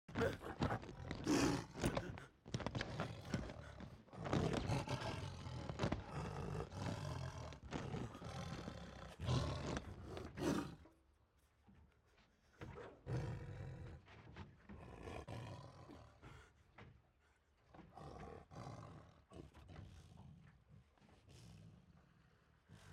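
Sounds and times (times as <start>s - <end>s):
tiger roaring and snarling: 0.1s - 10.9s, 14.7s - 16.4s, 17.8s - 20.2s.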